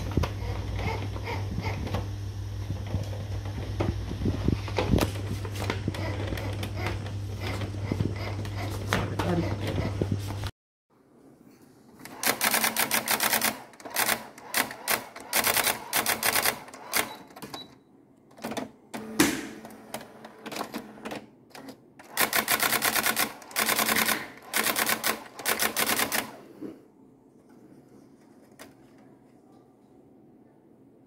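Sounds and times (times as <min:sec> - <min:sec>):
typewriter print-hammer strikes: 0:12.1 - 0:17.7, 0:18.4 - 0:26.4.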